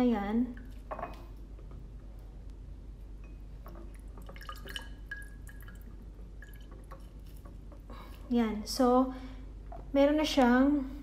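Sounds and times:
juice dripping into a glass: 3.6s - 7.4s.

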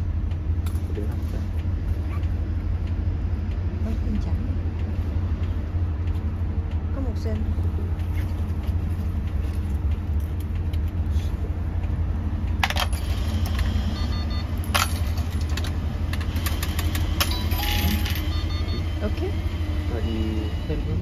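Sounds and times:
bus engine rumbling: 0.0s - 21.0s
faint high beeps: 13.9s - 14.6s, 17.3s - 19.0s.

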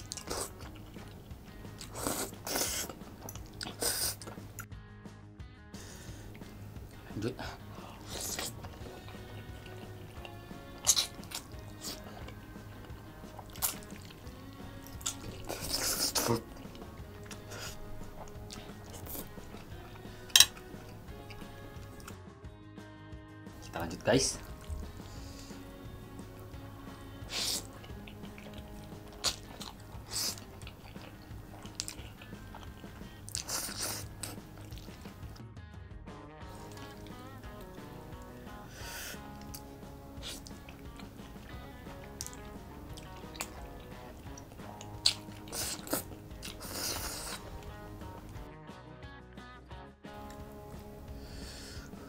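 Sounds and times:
lip smacks: 0.0s - 4.7s, 6.3s - 22.2s, 24.4s - 35.4s, 36.6s - 48.4s
slurping noodles: 0.0s - 4.7s, 7.6s - 22.1s, 27.0s - 35.4s, 36.5s - 48.4s
wet chewing: 0.0s - 4.7s, 6.0s - 22.2s, 24.4s - 35.4s, 36.5s - 48.5s
soft background music: 0.0s - 52.0s.

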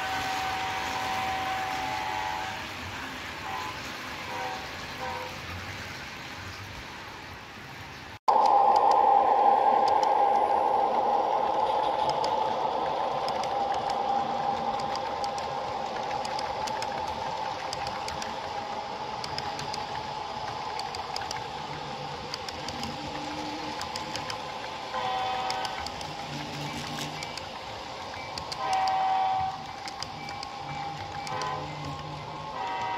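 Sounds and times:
model locomotive mechanical hum: 0.0s - 6.5s, 8.4s - 32.9s
chord of higher tones: 8.3s - 17.8s
wheels ticking over track: 8.3s - 32.9s.

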